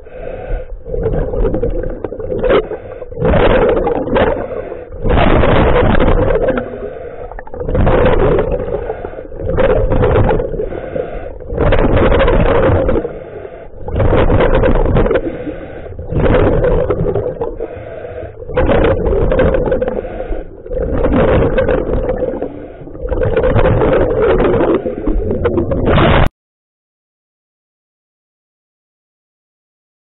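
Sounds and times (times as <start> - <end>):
exhaled bubbles rushing: 0.2 - 26.3
regulator inhale hiss: 10.6 - 11.4, 17.6 - 18.4.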